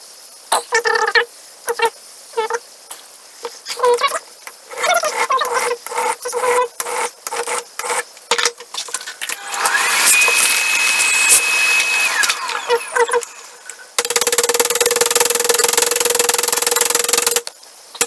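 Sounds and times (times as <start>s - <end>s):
hand file rasping on metal: 4.7s - 8.0s
power tool motor whining: 9.3s - 13.8s.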